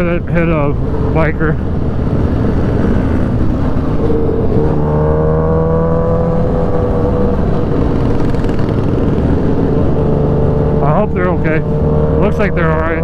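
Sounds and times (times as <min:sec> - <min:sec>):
wind and road rush: 0:00.0 - 0:13.0
motorcycle engine under throttle: 0:02.3 - 0:13.0.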